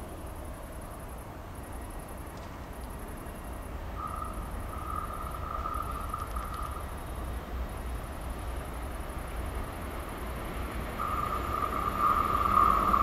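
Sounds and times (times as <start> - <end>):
insects chirping in trills: 0.0 - 13.0
steady high squeal: 2.9 - 13.0.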